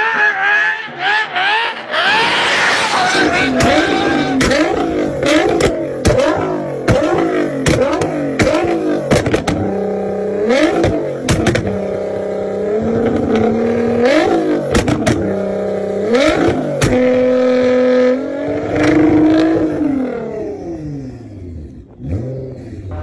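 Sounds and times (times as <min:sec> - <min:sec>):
car engine revving: 0:00.0 - 0:23.0
exhaust pops and bangs: 0:03.5 - 0:09.8, 0:10.6 - 0:11.9, 0:14.6 - 0:15.3, 0:16.2 - 0:17.2.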